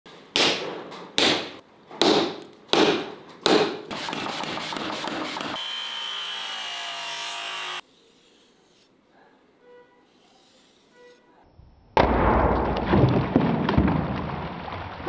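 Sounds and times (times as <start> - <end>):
cut-off wheel cutting steel: 3.9 - 9.0.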